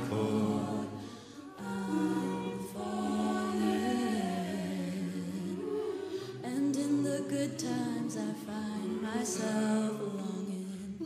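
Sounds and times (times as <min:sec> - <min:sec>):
a cappella choir singing: 0:00.0 - 0:11.0.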